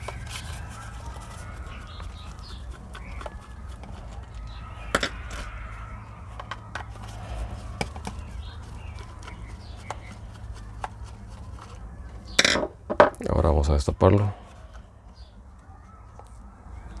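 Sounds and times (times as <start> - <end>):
low hum: 0.0 - 12.9.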